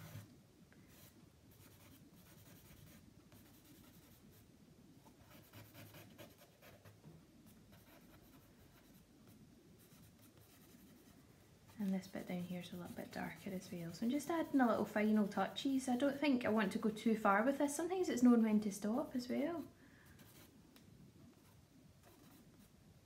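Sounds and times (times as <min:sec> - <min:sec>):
charcoal scratching on paper: 0:00.0 - 0:00.3, 0:00.9 - 0:04.3, 0:05.1 - 0:07.0, 0:07.7 - 0:16.5, 0:19.3 - 0:20.5.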